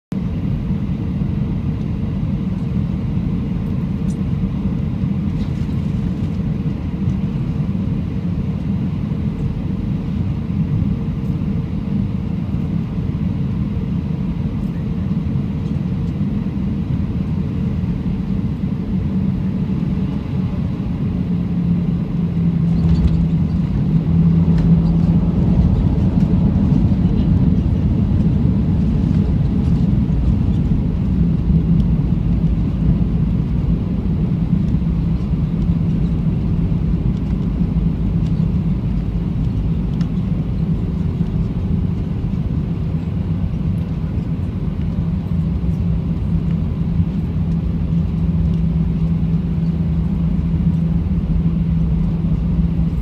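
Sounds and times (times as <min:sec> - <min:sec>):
jet engines and airflow rumble: 0:00.1 - 0:53.0
aircraft touching down: 0:14.6 - 0:53.0.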